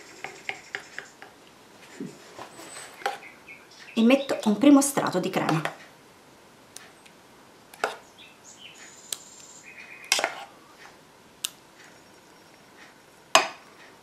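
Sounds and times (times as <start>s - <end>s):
faint high chirps: 8.0s - 10.8s, 11.8s - 13.2s.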